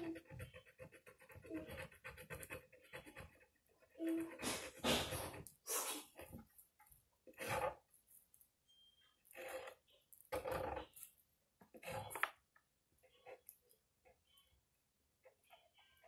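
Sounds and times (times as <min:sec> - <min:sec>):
pen scratching and tapping on card: 0:00.0 - 0:06.7, 0:07.3 - 0:07.8.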